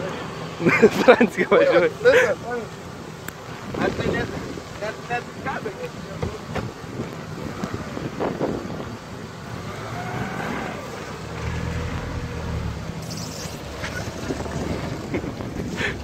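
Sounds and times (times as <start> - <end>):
car engine driving past: 9.6 - 14.9.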